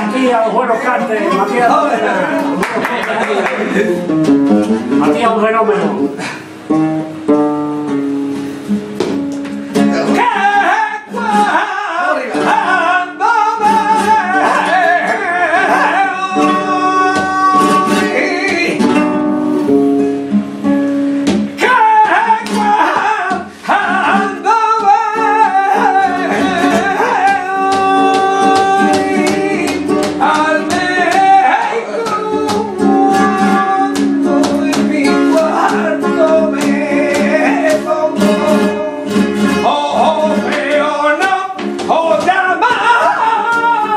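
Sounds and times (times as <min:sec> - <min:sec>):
flamenco guitar: 0:00.0 - 0:43.9
man singing: 0:09.8 - 0:19.4, 0:21.5 - 0:43.9.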